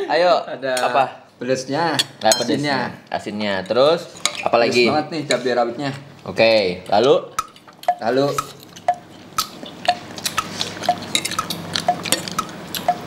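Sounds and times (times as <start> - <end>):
forks clinking on ceramic bowls: 10.8 - 12.4.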